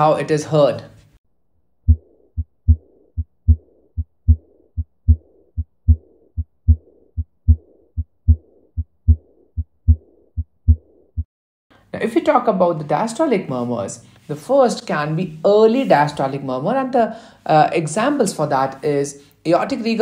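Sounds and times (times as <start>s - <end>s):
heartbeat lub-dub: 1.8s - 11.3s
soft blowing heart murmur: 1.8s - 11.3s.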